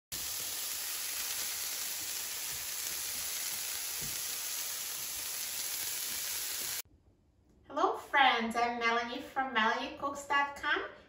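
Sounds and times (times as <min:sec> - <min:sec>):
vegetables sizzling in oil: 0:00.1 - 0:06.8.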